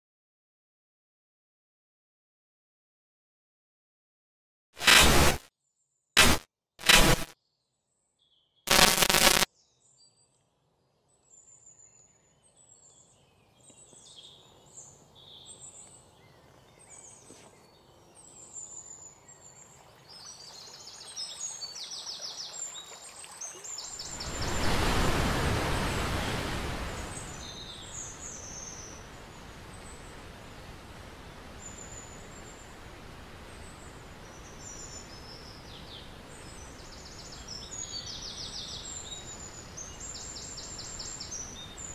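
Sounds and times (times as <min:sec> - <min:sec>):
rushing noise: 0:04.8 - 0:05.4, 0:06.2 - 0:07.3, 0:08.7 - 0:09.5, 0:24.1 - 0:27.7
background hiss: 0:08.7 - 0:09.5, 0:23.7 - 0:41.9
birds chirping: 0:23.6 - 0:32.7.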